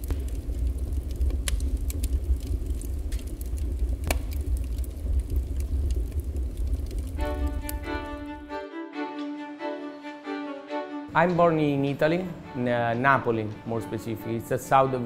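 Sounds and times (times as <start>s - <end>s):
fire low rumble: 0.0s - 8.5s
fire crackling and popping: 0.0s - 8.6s.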